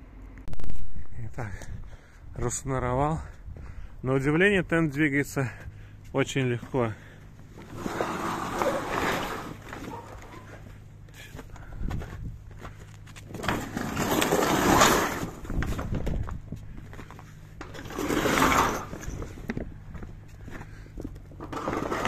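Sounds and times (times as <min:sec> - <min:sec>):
low steady hum: 0:00.0 - 0:22.0
canvas tarp scraping and rustling: 0:07.6 - 0:10.4, 0:13.3 - 0:15.9, 0:17.7 - 0:19.3.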